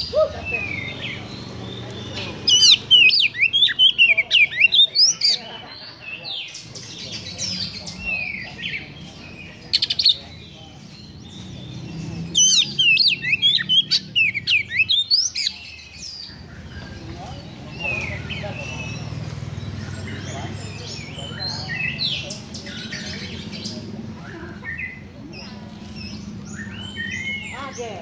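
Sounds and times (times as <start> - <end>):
bird whistling and chattering: 0.0 - 5.4, 11.9 - 17.0.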